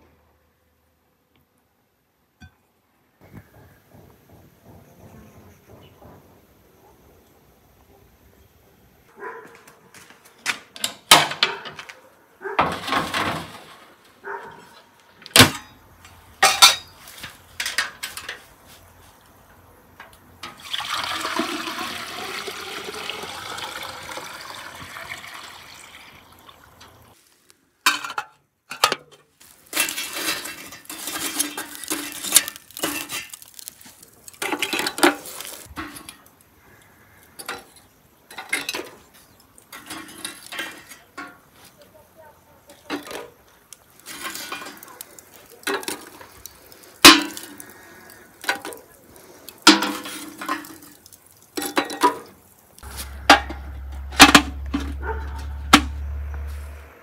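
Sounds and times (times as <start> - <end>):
metal clanks and knocks: 3.4 - 6.9, 16.4 - 18.4, 52.8 - 56.7
water pouring: 20.4 - 27.2, 29.5 - 36.0, 42.9 - 55.6.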